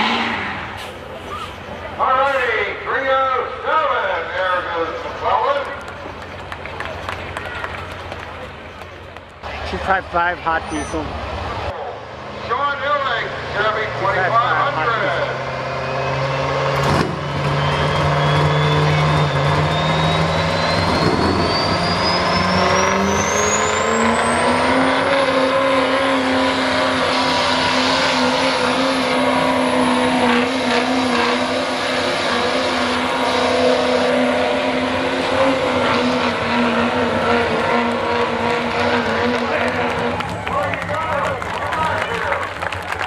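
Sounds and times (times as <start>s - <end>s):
diesel pickup engine revving: 0.0s - 43.0s
turbo whistle: 17.4s - 24.4s.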